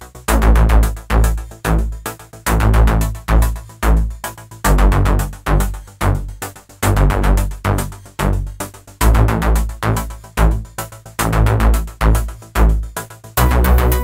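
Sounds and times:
music with heavy beat: 0.0s - 14.0s.

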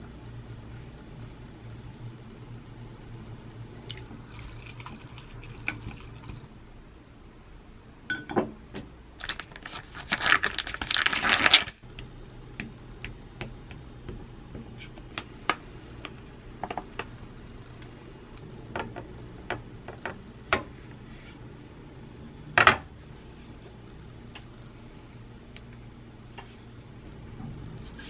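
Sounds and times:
bag clicks and rustles: 9.2s - 11.8s.

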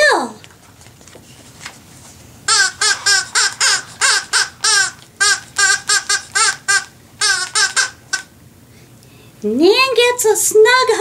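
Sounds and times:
high squeaky voice laughing: 2.5s - 8.3s.

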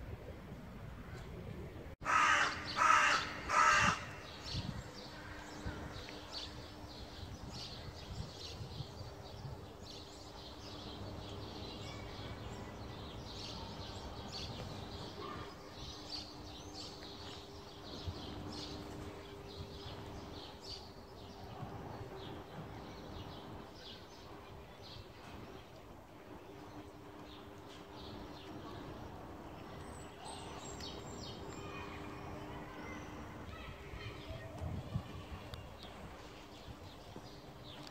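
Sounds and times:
steady low hum: 0.0s - 37.9s
crow cawing: 2.0s - 4.3s.

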